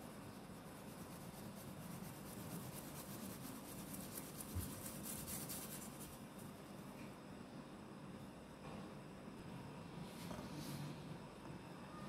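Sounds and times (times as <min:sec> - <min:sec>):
flour sifting through mesh sieve: 0:00.0 - 0:06.6.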